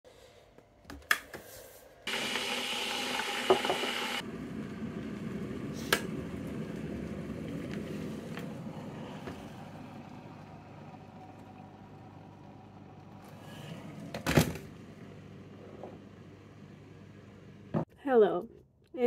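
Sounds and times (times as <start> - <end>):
kettle hiss: 2.1 - 4.9
kettle heating rumble: 2.1 - 17.9.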